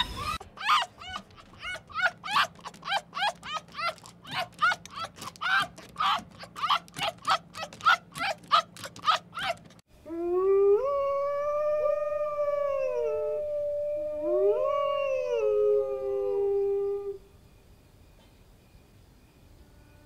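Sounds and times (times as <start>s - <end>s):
fox yapping: 0.3s - 9.8s
wolves howling: 0.6s - 17.2s.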